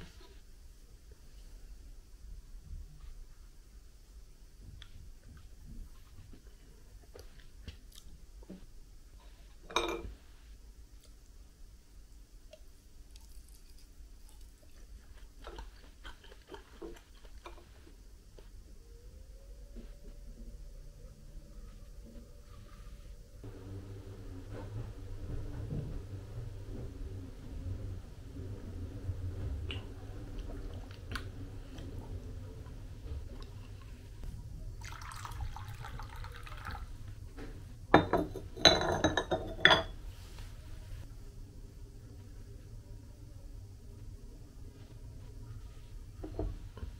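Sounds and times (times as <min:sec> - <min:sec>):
quiet chewing: 0:06.4 - 0:08.2, 0:12.5 - 0:18.6
pottery lid clinking: 0:09.7 - 0:10.1, 0:38.0 - 0:40.0.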